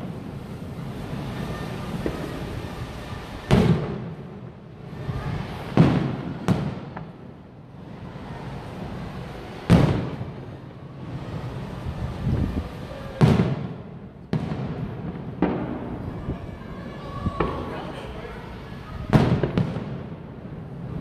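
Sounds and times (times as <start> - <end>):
firework shells booming: 0.0 - 4.6, 5.5 - 7.4, 8.9 - 11.7, 13.2 - 16.2, 19.1 - 21.0.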